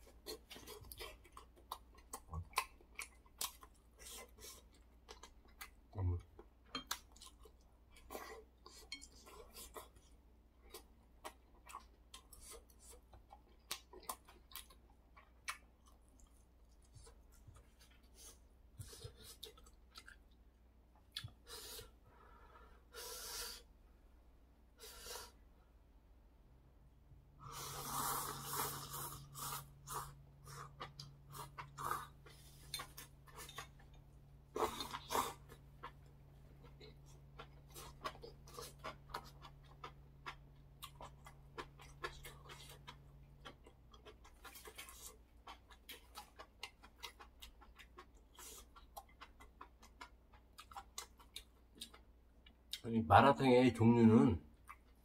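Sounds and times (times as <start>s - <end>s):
person chewing: 0.0s - 22.0s, 27.4s - 52.8s
slurping noodles: 27.4s - 32.7s.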